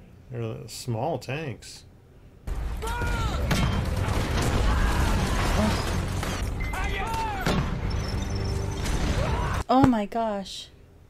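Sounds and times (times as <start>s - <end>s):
explosions: 2.5s - 8.0s
film score music: 5.6s - 9.6s.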